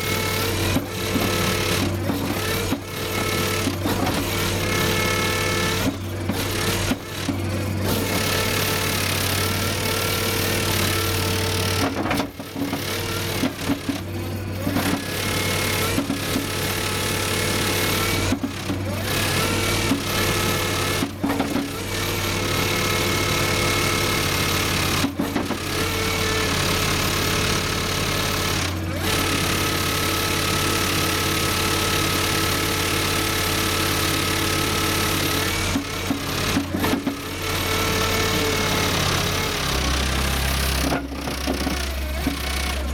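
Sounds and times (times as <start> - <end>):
loader engine running: 0.0 - 42.9.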